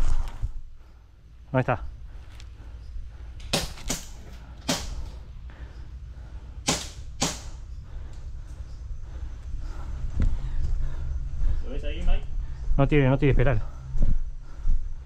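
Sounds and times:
airsoft gun shots: 0:03.5 - 0:05.0, 0:06.6 - 0:07.6.

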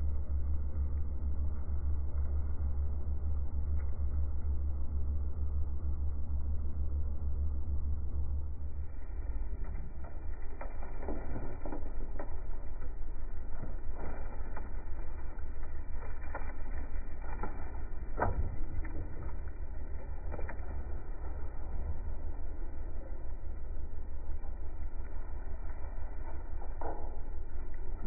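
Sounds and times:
dirt and rocks tumbling onto track: 0:09.1 - 0:28.0.

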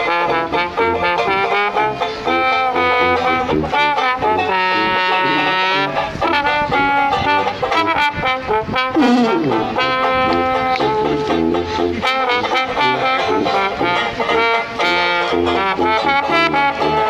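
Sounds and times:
banjo: 0:00.0 - 0:17.0
trombone: 0:00.0 - 0:17.0
tuba: 0:00.0 - 0:17.0.

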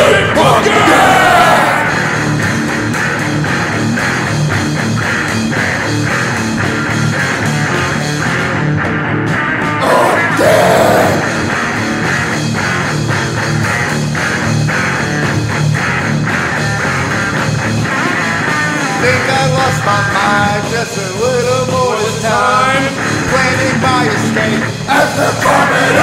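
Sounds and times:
rock guitar: 0:00.0 - 0:26.0.

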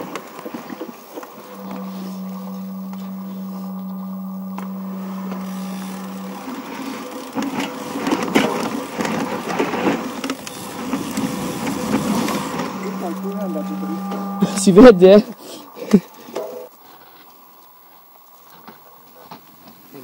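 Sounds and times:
bike rolling hum: 0:00.0 - 0:15.4
bike rattling over rough ground: 0:05.5 - 0:12.7.

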